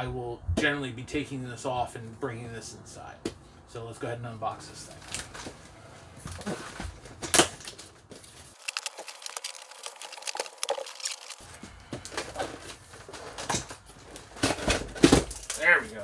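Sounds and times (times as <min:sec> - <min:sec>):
cardboard box being opened: 0:06.3 - 0:15.5.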